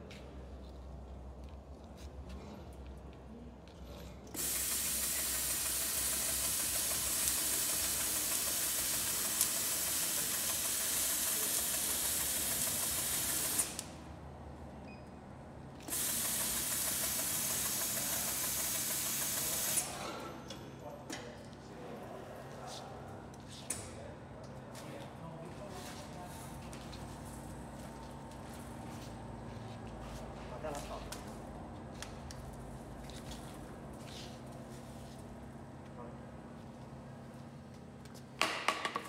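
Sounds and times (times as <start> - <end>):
roll cutter blade hissing: 4.4 - 14.0, 15.9 - 20.1.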